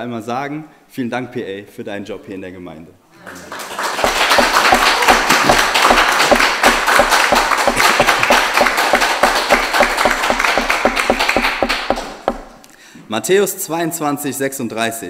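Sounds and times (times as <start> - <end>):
crowd applauding: 3.2 - 12.5.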